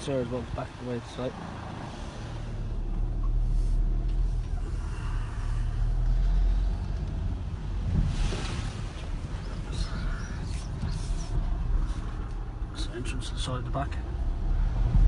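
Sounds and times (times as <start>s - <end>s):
car engine and road rumble: 0.0s - 15.0s.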